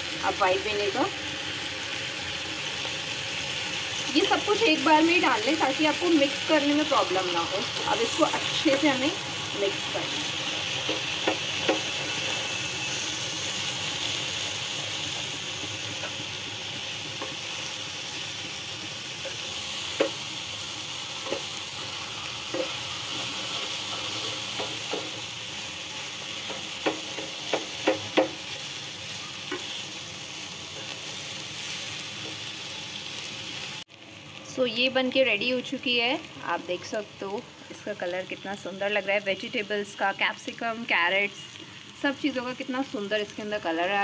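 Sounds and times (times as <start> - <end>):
frying sizzle in a wok: 0.0 - 44.0
spatula scraping a pan: 22.5 - 25.2
knocks on a pan: 26.8 - 28.4.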